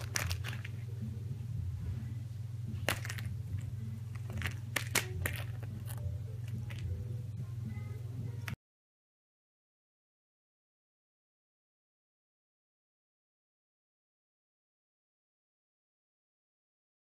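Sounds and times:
steady low hum: 0:00.0 - 0:08.6.

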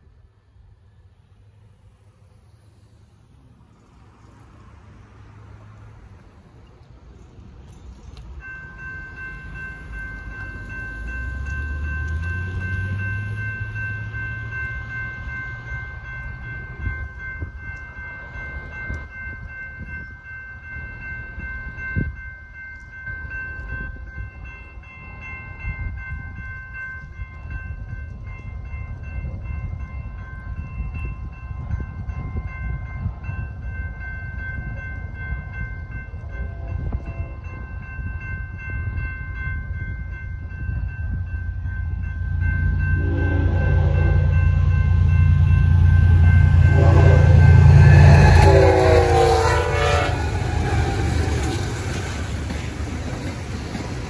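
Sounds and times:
diesel freight train rumbling: 0:00.0 - 0:54.0
railroad crossing bell ringing: 0:03.8 - 0:54.0
train horn: 0:42.9 - 0:51.7.

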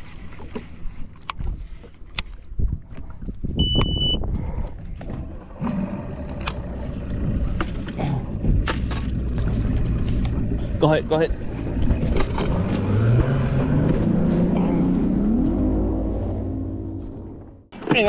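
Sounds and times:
boat engine rumbling: 0:00.0 - 0:18.0
short high beep: 0:03.6 - 0:04.2.

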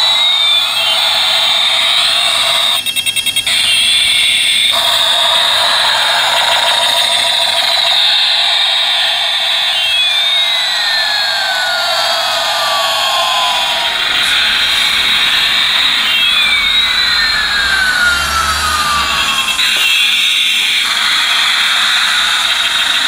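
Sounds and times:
toy jet engine sound effect: 0:00.0 - 0:23.0
electronic beeps: 0:12.5 - 0:20.8.

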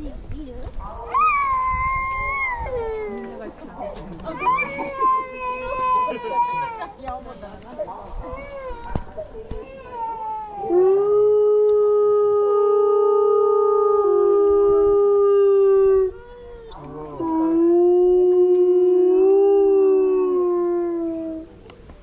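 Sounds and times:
wolves howling: 0:10.6 - 0:21.5.

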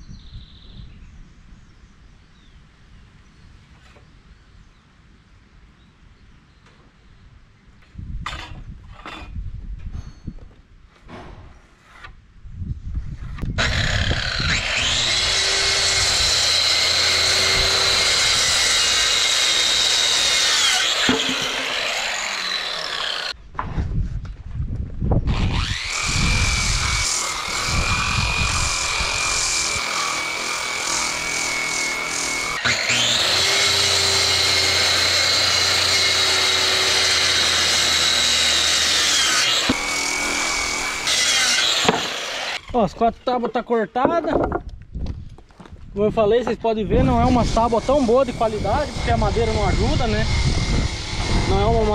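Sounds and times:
circular saw cutting wood: 0:13.4 - 0:23.4, 0:25.3 - 0:44.4, 0:46.9 - 0:51.9
quieter power tool running: 0:13.6 - 0:23.4, 0:25.4 - 0:42.7
knock: 0:44.2 - 0:44.7.

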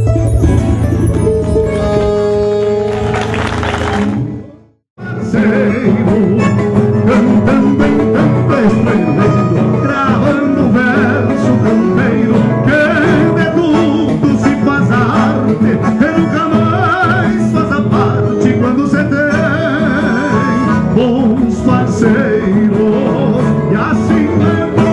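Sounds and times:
percussion: 0:00.0 - 0:04.3
accordion: 0:00.0 - 0:24.9
acoustic guitars: 0:00.0 - 0:24.9
man singing: 0:05.0 - 0:24.9.

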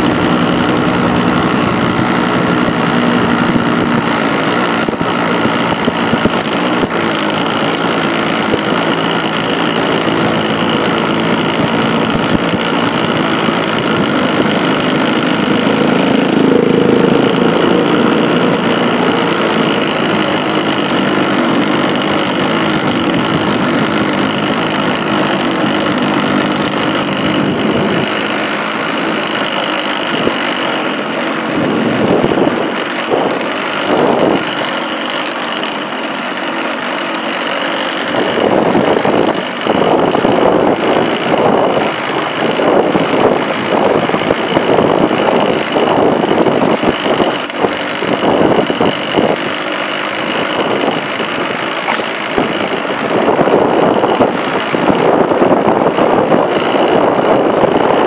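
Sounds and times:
motorcycle engine running: 0:00.0 - 0:58.0
wind buffeting microphone: 0:50.6 - 0:58.0.

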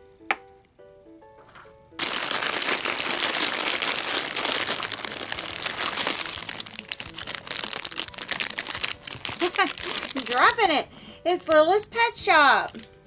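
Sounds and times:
plastic packets crinkling: 0:02.0 - 0:10.8.

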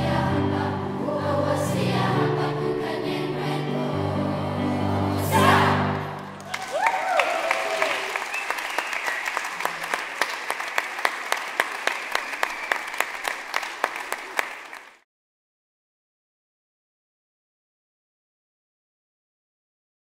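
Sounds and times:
audience applause: 0:06.2 - 0:15.0
rhythmic clapping in unison: 0:06.4 - 0:15.0.

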